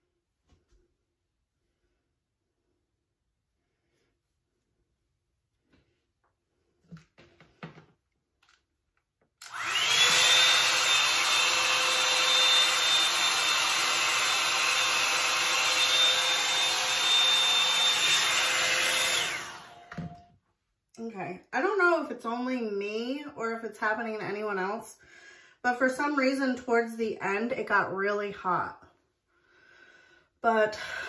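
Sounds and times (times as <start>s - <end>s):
hot-air brush fan whining: 9.4s - 20.2s.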